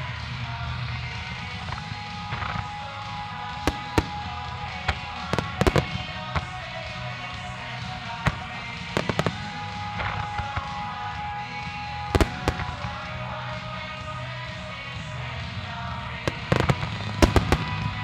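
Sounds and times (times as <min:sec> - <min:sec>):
music: 0:00.0 - 0:18.0
firework shells bursting: 0:01.6 - 0:06.9, 0:08.0 - 0:10.9, 0:12.0 - 0:13.6, 0:16.3 - 0:18.0.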